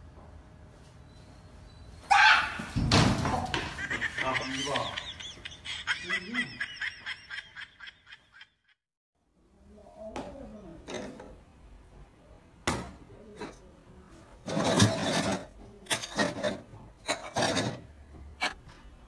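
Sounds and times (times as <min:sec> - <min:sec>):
man's voice: 0:04.2 - 0:05.1.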